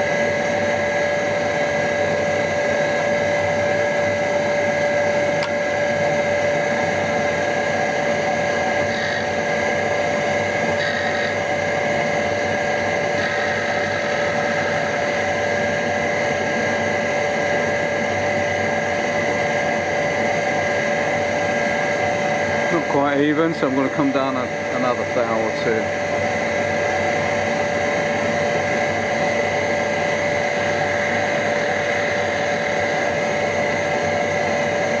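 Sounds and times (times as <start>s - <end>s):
grinder whine: 0.0s - 35.0s
high grinding hiss: 8.8s - 9.6s, 10.7s - 11.6s, 13.0s - 16.8s, 30.2s - 34.0s.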